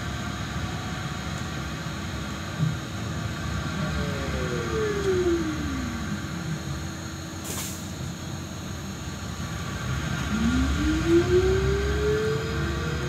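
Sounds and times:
electric traction drive whining: 0:03.2 - 0:07.4, 0:09.4 - 0:13.0
air hiss: 0:07.4 - 0:08.1.

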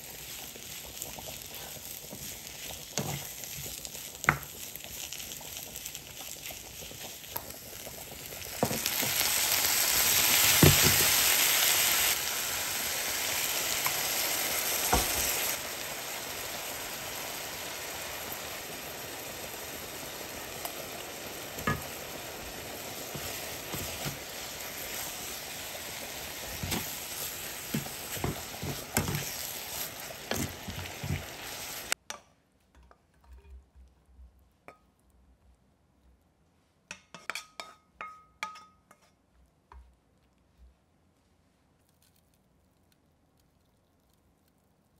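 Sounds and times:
food sizzling in frying pan: 0:00.0 - 0:32.0.

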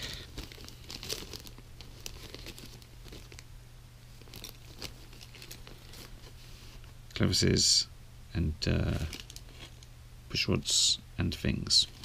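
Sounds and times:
plastic bags crinkling: 0:00.0 - 0:06.4, 0:08.9 - 0:09.8
steady low hum: 0:00.0 - 0:12.0.

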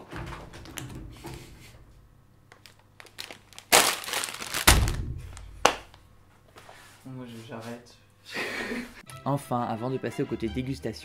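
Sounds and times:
plastic bag crinkling: 0:02.5 - 0:06.0
bag thumped on table: 0:04.6 - 0:05.4.

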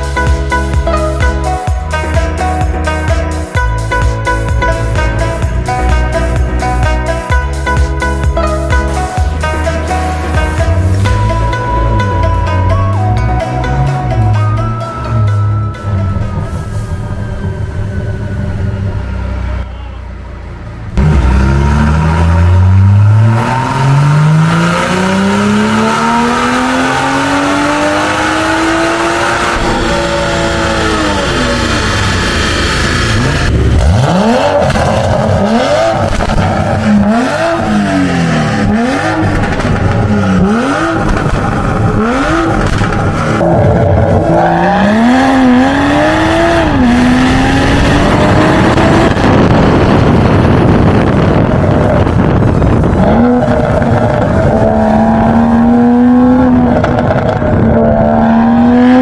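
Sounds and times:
turbocharged car engine revving: 0:17.4 - 0:59.0.

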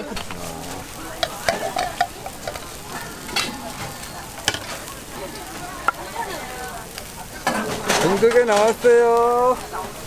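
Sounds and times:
meat sizzling on grill: 0:00.0 - 0:10.0
metal utensils clicking: 0:01.2 - 0:06.0.

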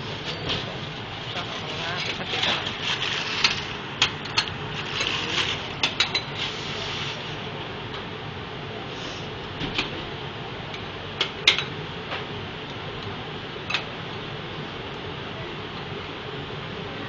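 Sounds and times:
cabinet blower noise: 0:00.0 - 0:07.9.

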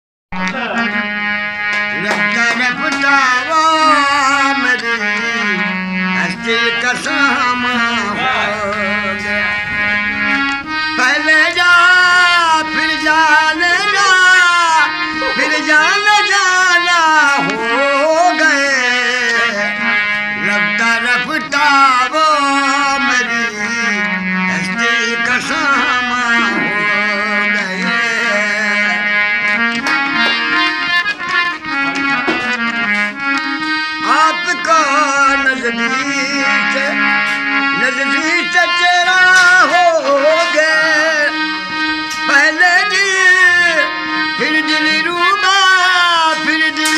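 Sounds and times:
harmonium chords: 0:00.3 - 0:46.9
man singing folk song: 0:02.0 - 0:09.3, 0:11.0 - 0:29.0, 0:34.0 - 0:37.0, 0:37.7 - 0:41.4, 0:42.3 - 0:46.9.

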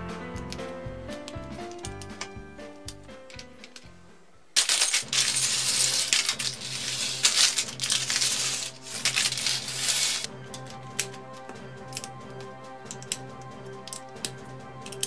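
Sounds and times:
plastic bricks clattering on table: 0:04.6 - 0:11.1, 0:13.8 - 0:15.0.

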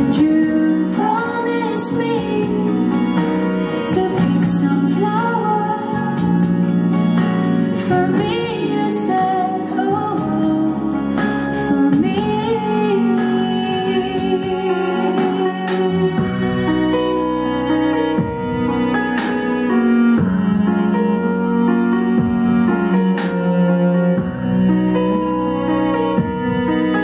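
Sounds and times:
woman singing into microphone: 0:00.0 - 0:06.8, 0:07.8 - 0:17.0
instrumental accompaniment: 0:00.0 - 0:27.0.

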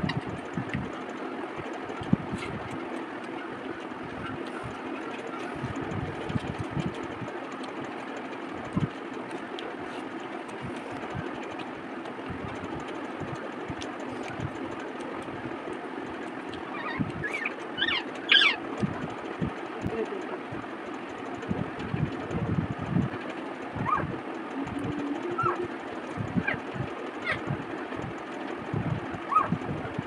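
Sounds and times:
background hum: 0:00.0 - 0:30.0
high warbling calls: 0:16.6 - 0:18.6, 0:23.8 - 0:25.8.

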